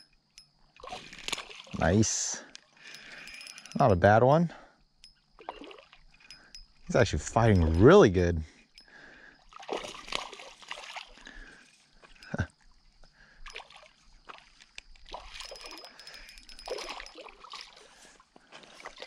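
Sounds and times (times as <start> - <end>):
fish splashing in water: 0.8 - 1.8, 5.4 - 6.0, 9.4 - 11.4, 13.5 - 18.0.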